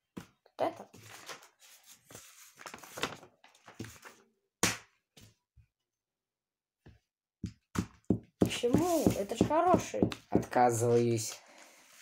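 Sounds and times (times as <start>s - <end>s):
paper rustling: 0.9s - 4.3s.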